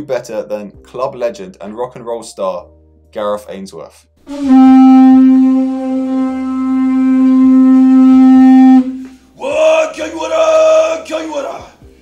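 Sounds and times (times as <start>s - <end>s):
conch shell trumpet held note: 4.3s - 9.1s
man shouting: 9.4s - 11.7s.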